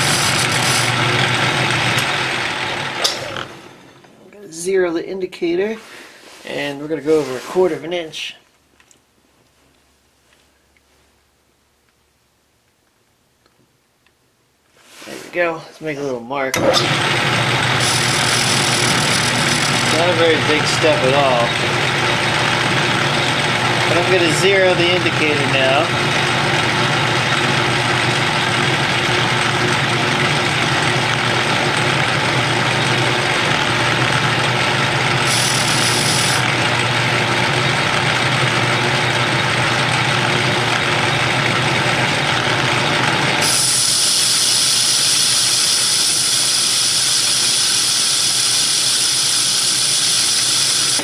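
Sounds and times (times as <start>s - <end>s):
metal lathe cutting: 0.0s - 3.8s, 16.6s - 51.0s.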